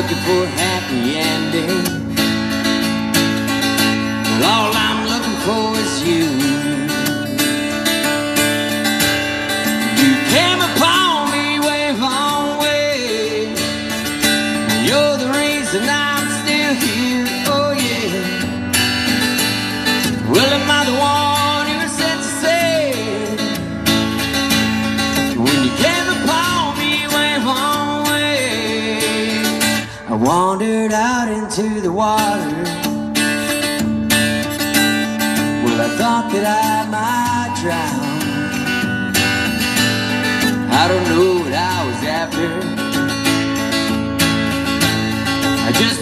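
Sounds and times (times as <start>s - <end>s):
man singing: 0.0s - 8.8s, 9.4s - 18.8s, 19.8s - 23.7s, 25.0s - 33.3s, 35.1s - 39.0s, 40.5s - 43.9s, 44.7s - 46.0s
acoustic guitar strumming: 0.0s - 46.0s.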